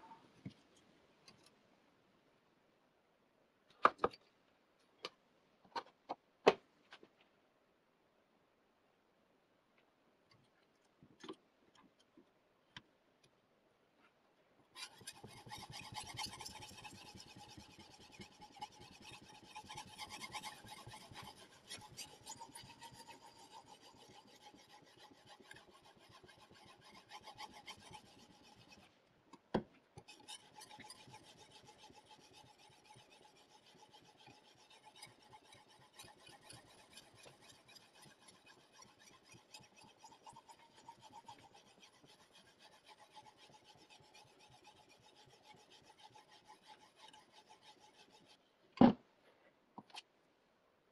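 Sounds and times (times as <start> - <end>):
sharpening stone rasping on knife: 14.8 - 28.9, 30.0 - 48.4.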